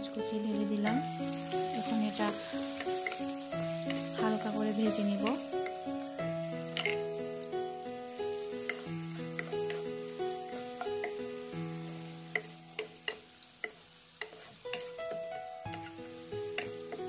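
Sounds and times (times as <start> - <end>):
soft background music: 0.0 - 17.0
vegetables sizzling in hot oil: 0.0 - 17.0
spatula tapping against pan: 10.8 - 11.2, 12.3 - 15.3, 16.5 - 17.0.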